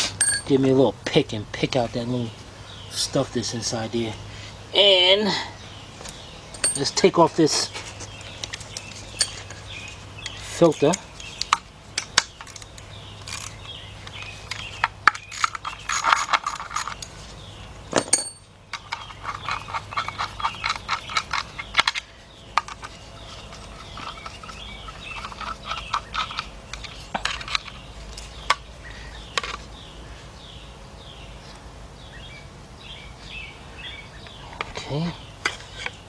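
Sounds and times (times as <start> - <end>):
metal clinks: 0.2 - 0.5, 6.5 - 7.0, 9.2 - 9.6, 17.9 - 18.5.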